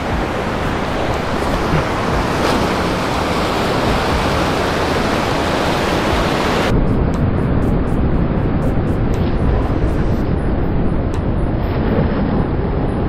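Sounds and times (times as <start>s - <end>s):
small waves breaking on sand: 0.0s - 6.7s.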